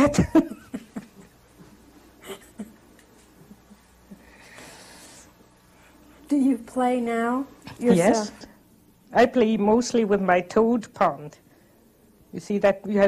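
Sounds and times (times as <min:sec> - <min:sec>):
soft breath: 0:04.1 - 0:06.2.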